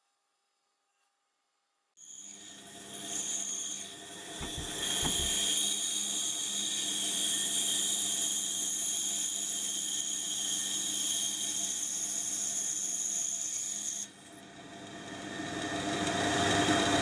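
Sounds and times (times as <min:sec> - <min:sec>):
band saw cutting wood: 0:03.1 - 0:05.9.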